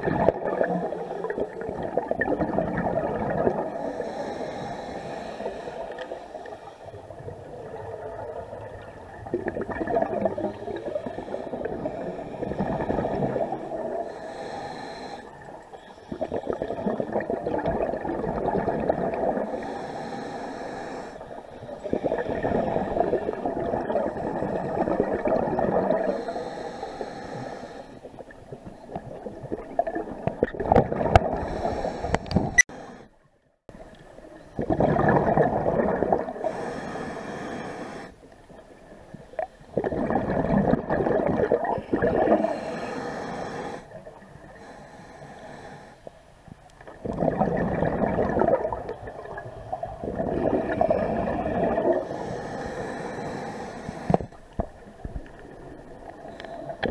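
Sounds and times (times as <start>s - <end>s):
exhaled air bubbling underwater: 0.0s - 33.0s, 33.7s - 56.9s
regulator inhale hiss: 3.7s - 7.2s, 10.4s - 12.7s, 13.5s - 16.8s, 19.4s - 23.4s, 26.0s - 28.1s, 31.3s - 33.2s, 36.4s - 38.3s, 42.4s - 46.2s, 52.0s - 54.9s, 56.0s - 56.8s.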